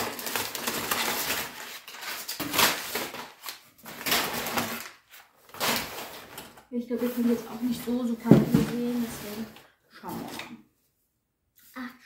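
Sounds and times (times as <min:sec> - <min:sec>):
packing paper crinkling: 0:00.0 - 0:08.0.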